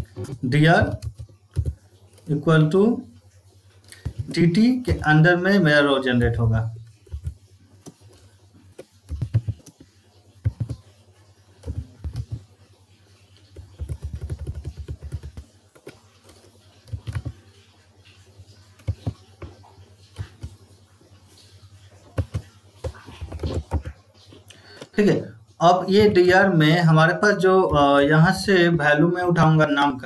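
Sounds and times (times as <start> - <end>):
typing on computer keyboard: 0.2 - 2.4, 3.9 - 5.1, 6.7 - 12.5, 13.4 - 17.6, 18.7 - 20.6, 22.1 - 24.0.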